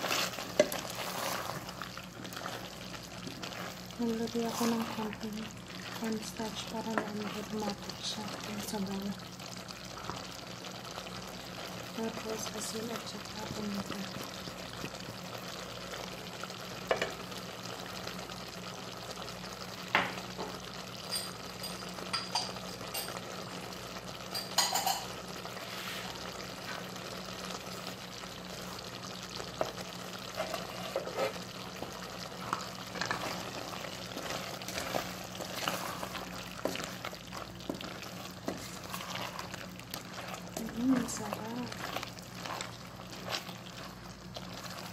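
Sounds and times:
sauce bubbling in a pot: 0.0 - 44.9.

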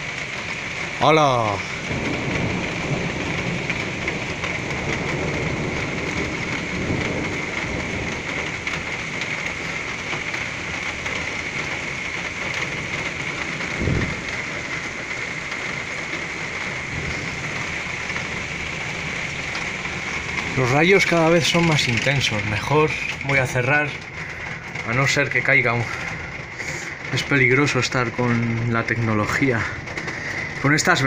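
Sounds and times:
thunder rumbling: 0.0 - 31.0
torrential rain: 0.0 - 31.0
low thump: 13.8 - 14.2.

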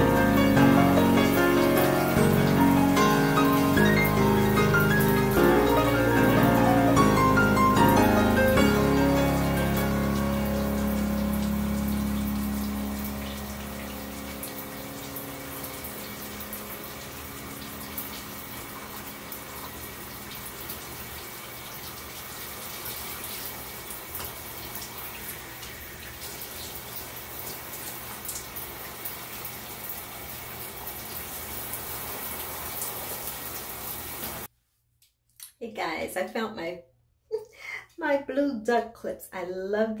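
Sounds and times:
shower water spraying: 0.0 - 34.5
water drips and splashes: 0.0 - 34.5.

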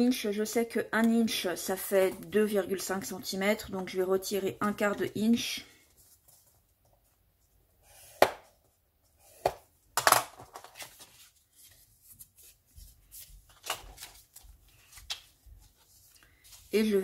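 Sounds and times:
paper rustling: 10.4 - 17.0.

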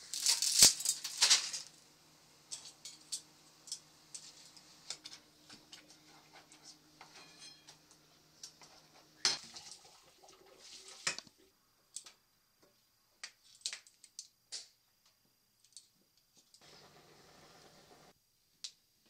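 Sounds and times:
low steady hum: 0.0 - 13.0
utensil scraping a saucepan: 4.1 - 7.8.

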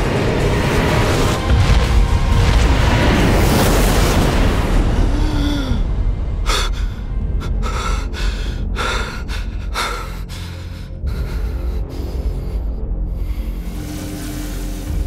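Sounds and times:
low background music: 0.0 - 15.0
man panting heavily: 6.7 - 12.7.

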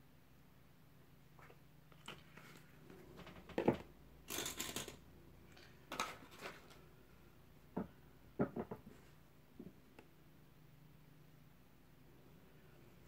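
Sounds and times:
knock on wooden table: 7.8 - 8.9.

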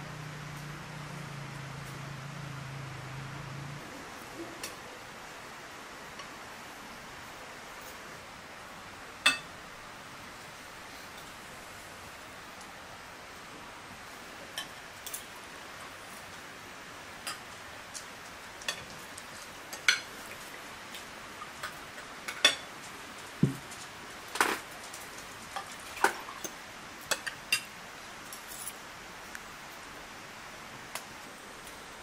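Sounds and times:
cutlery clinking against dishes: 9.3 - 9.5, 21.6 - 22.7
dull knock: 23.4 - 23.6.

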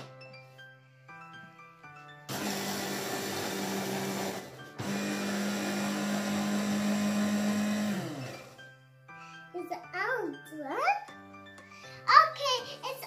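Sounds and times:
hand blender chopping: 2.3 - 8.6.

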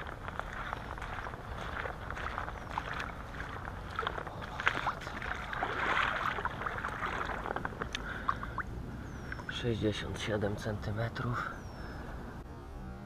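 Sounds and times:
water sloshing: 0.0 - 9.8.

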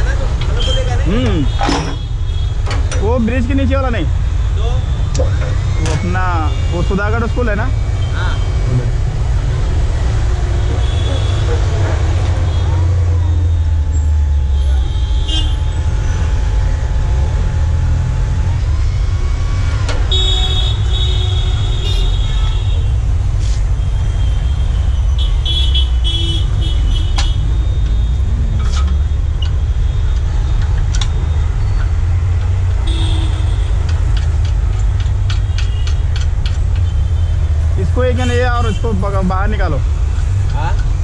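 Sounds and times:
street traffic: 0.0 - 41.0
horn toots: 14.4 - 16.3.

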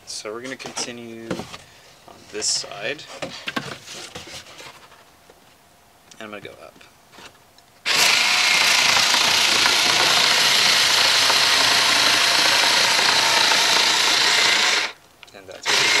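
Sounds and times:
rotary cutter buzzing whir: 7.9 - 15.0, 15.6 - 16.0.

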